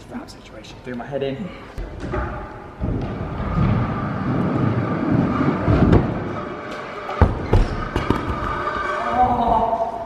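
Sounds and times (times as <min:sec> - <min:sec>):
scooter wheels rumbling on ramp: 0:01.8 - 0:09.7.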